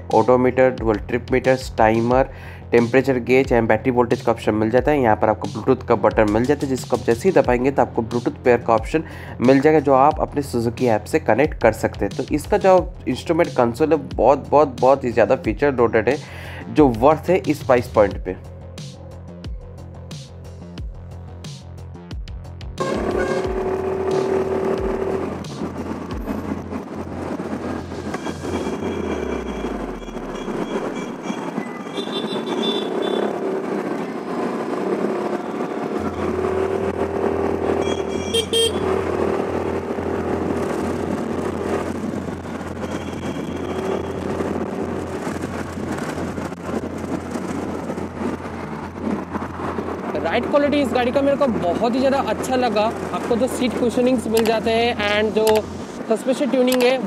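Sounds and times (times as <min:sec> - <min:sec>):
engine noise: 0:22.6 - 0:57.0
vehicle horns honking: 0:22.8 - 0:25.4, 0:30.8 - 0:33.6, 0:35.2 - 0:39.4, 0:42.8 - 0:44.6
wind rushing: 0:22.8 - 0:37.9, 0:38.8 - 0:56.5.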